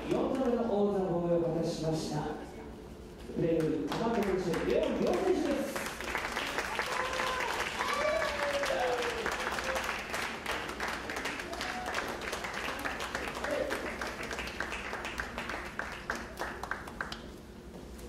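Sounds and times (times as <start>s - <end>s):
audience applauding: 3.6s - 17.3s.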